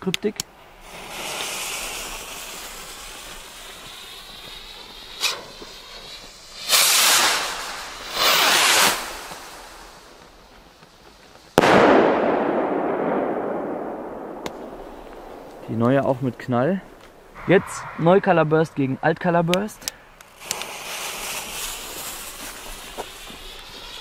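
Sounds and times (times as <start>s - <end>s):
firework rocket launch hiss: 0.5s - 24.0s
loud firework bursts: 0.5s - 24.0s
small pop: 11.6s - 15.6s
sharp echoing bang: 11.6s - 19.9s.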